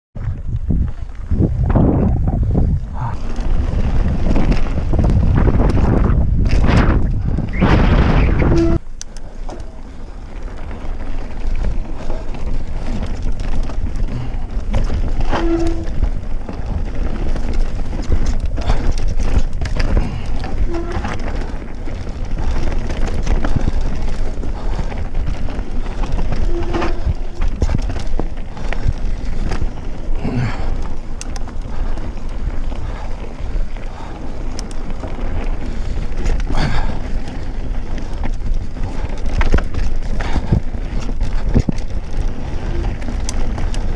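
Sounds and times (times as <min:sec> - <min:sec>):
bike clattering over bumps: 0:00.2 - 0:43.9
bike tyres rumbling: 0:00.2 - 0:43.9
wind buffeting microphone: 0:00.2 - 0:43.9
brief squeaks: 0:15.2 - 0:15.9.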